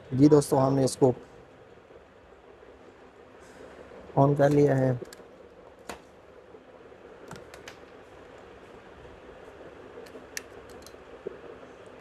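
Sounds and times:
faint steady hiss: 0.0s - 12.0s
faint clicks: 4.4s - 6.1s, 9.9s - 12.0s.

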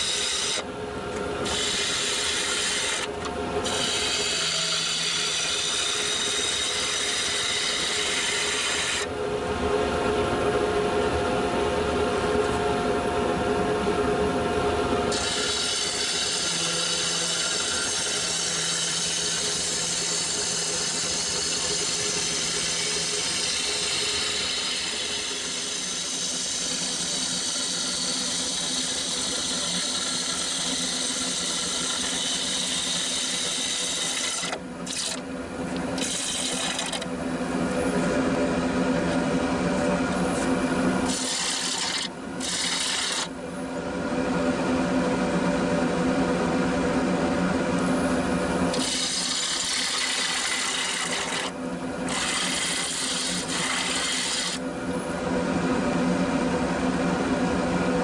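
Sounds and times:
lathe motor hum: 0.0s - 12.6s, 13.2s - 58.0s
gouge scraping wood on lathe: 1.4s - 9.1s, 15.1s - 35.2s, 36.0s - 37.1s, 41.1s - 43.3s, 48.7s - 54.6s.

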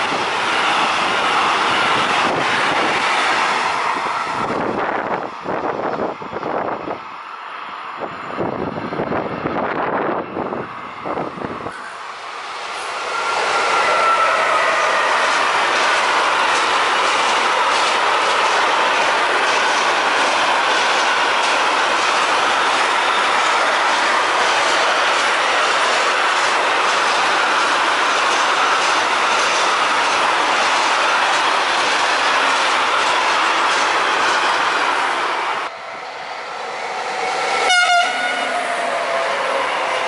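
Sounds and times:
freight train wheels on rail: 0.0s - 40.0s
locomotive horn blast: 12.9s - 15.3s, 37.5s - 39.6s.

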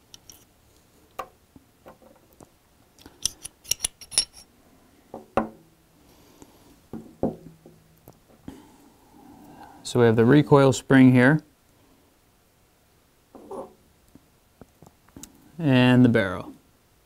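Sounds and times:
pistol parts clicking: 3.0s - 4.4s.

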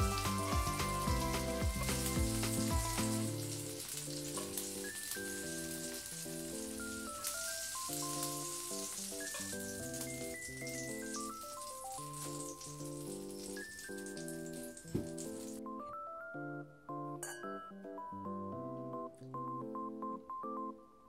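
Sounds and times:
background music with deep beat: 0.0s - 3.5s
fried food sizzling: 0.0s - 15.6s.

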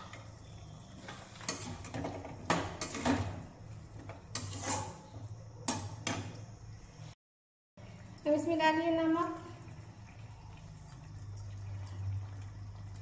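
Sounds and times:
metal spoon scraping a pot: 1.0s - 3.3s, 4.0s - 5.8s.

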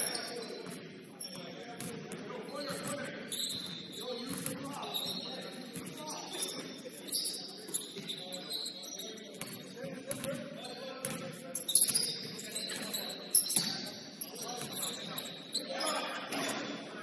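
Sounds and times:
sneakers squeaking on floor: 0.0s - 16.9s
players' voices: 0.0s - 17.0s
basketball bouncing on court: 9.4s - 12.4s.

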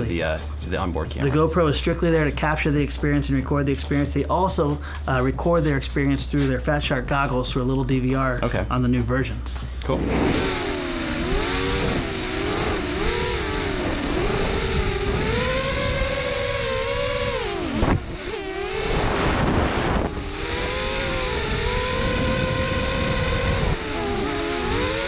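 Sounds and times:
drone motors whining: 9.6s - 25.0s.

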